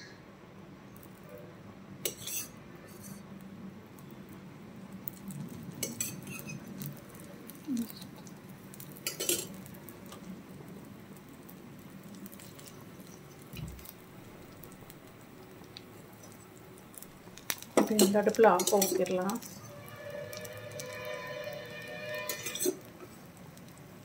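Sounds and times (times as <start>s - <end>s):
batter sizzling on hot pan: 0.8s - 24.0s
spoon clinking on cookware: 9.1s - 9.5s, 17.8s - 20.2s.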